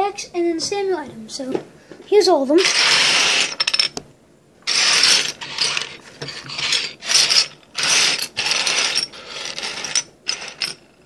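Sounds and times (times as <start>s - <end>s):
metal bottle caps rattling: 4.7s - 11.0s.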